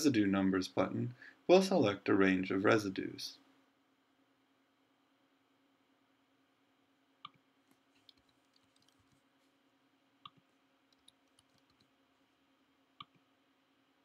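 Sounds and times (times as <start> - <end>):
low electrical hum: 0.0 - 14.0
computer mouse clicks: 8.0 - 9.2, 10.2 - 12.0.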